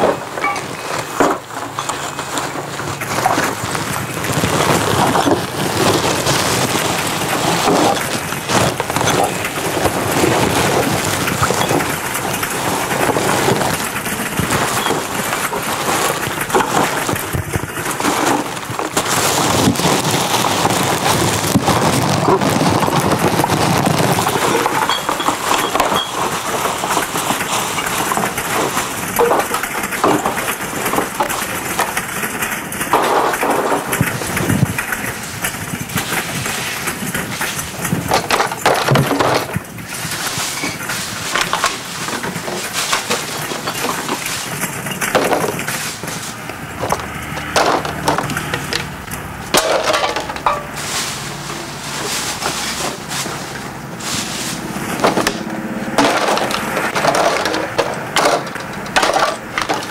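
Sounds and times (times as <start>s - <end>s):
dense clattering and crackling: 0.0s - 59.9s.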